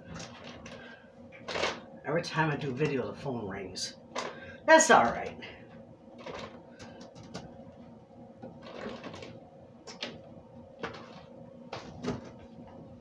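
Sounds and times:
faint appliance hum: 0.0 - 13.0
knocks and rustles: 8.4 - 12.7.

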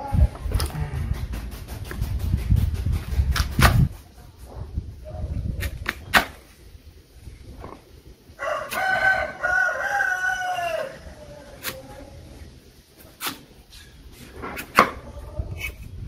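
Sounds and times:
rooster crowing: 8.4 - 11.2.

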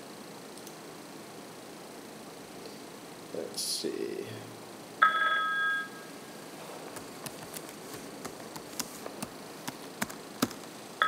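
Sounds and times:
electronic phone ring tone: 5.0 - 6.1
computer keyboard keys clicking: 6.9 - 10.7.

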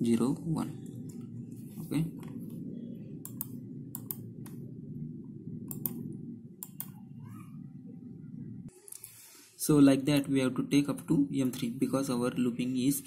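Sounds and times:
steady low hum: 0.0 - 13.0
computer mouse clicking: 3.2 - 4.6, 5.7 - 6.0, 6.6 - 7.0.

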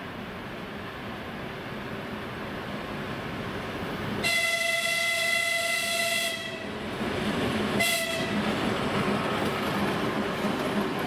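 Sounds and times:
train rumbling past: 0.0 - 11.0
locomotive horn blasts: 4.2 - 6.7, 7.8 - 8.4.

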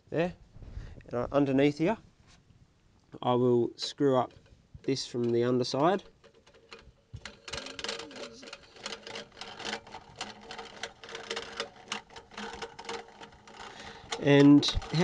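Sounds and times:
plastic clicking on metal thread: 3.9 - 15.0.

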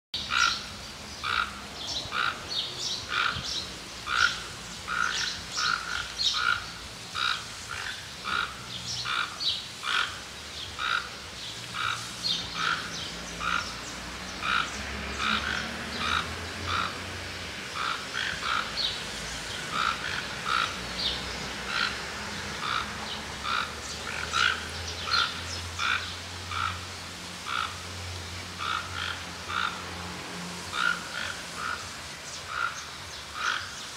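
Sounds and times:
toucan calling: 0.2 - 13.8, 19.7 - 20.8, 22.6 - 26.9.

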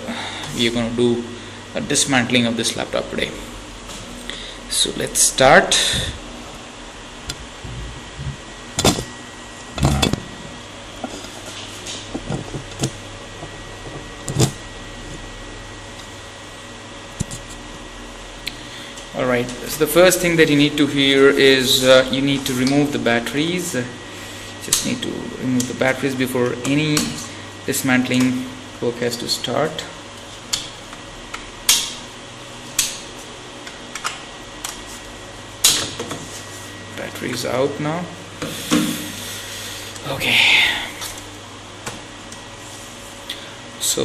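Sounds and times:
background hum and hiss: 0.0 - 44.0.

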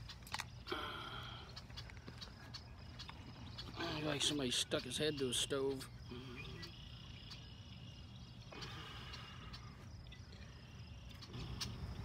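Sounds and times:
insect chorus: 0.0 - 12.0.

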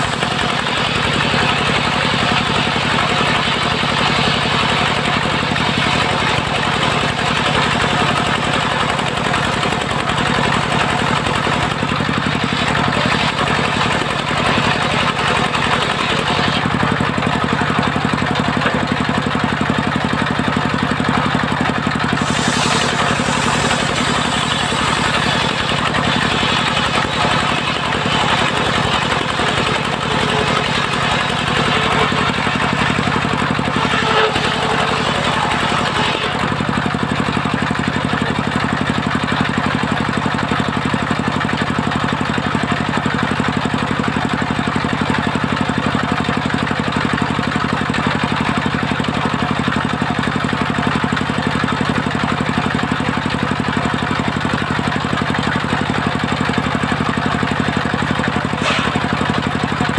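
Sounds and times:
saw drive hum: 0.0 - 38.0, 58.2 - 59.9
circular saw blade cutting log: 0.0 - 41.7, 51.5 - 59.9.

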